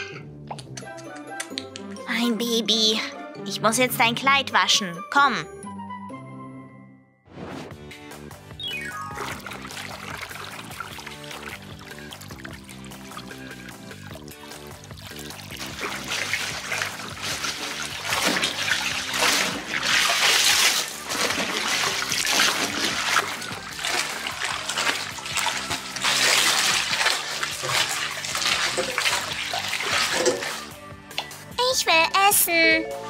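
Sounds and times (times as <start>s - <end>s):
water splashing in a bathtub: 9.0s - 30.8s
fabric swished through water: 9.1s - 30.8s.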